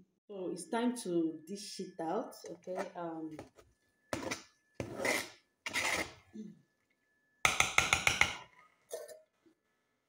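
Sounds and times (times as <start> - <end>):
metal spoon scraping pot: 4.2 - 6.3.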